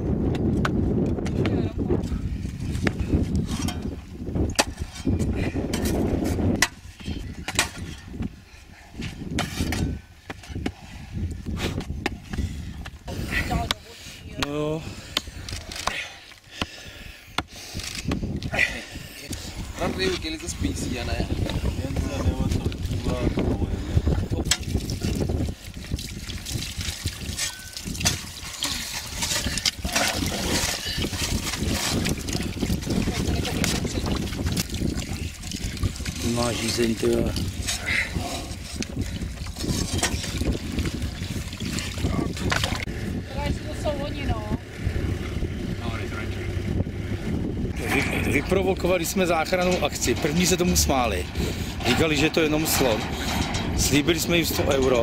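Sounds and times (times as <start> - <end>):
water pouring from plastic bottle: 22.4 - 23.3, 24.5 - 42.9.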